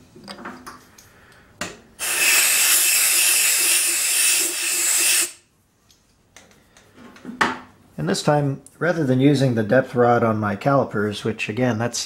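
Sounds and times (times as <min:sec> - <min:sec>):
compressed air hissing from blow gun: 0:02.0 - 0:05.4.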